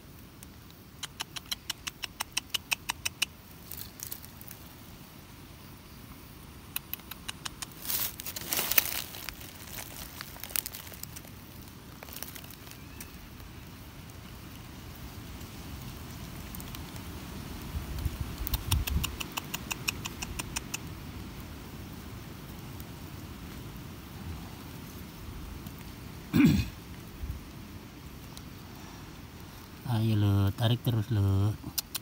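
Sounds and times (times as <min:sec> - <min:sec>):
sharp clicks: 0:01.0 - 0:03.8, 0:06.7 - 0:07.8, 0:18.4 - 0:20.9
dry stems rustling and crackling: 0:02.3 - 0:05.0, 0:06.8 - 0:20.5.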